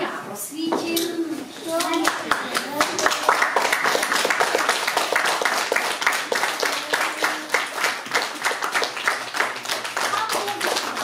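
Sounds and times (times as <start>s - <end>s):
audience applauding: 1.7s - 11.0s.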